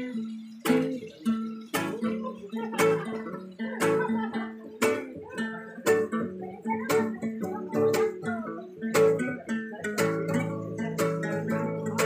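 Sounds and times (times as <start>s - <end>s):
acoustic guitars playing: 0.0s - 12.0s.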